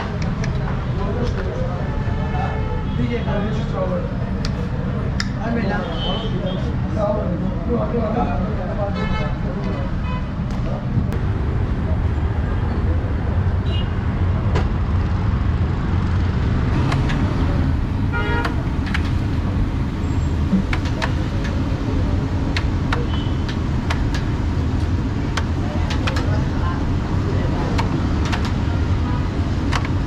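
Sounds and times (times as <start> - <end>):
street traffic rumble: 0.0 - 30.0
car horn toot: 18.1 - 18.6, 23.0 - 23.4.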